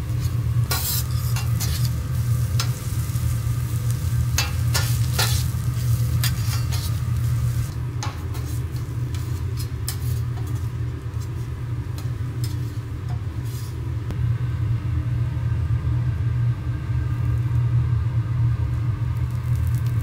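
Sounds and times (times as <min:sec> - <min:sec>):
steady low rumble: 0:00.0 - 0:20.0
spatulas clicking on griddle: 0:00.7 - 0:02.0, 0:04.3 - 0:07.0.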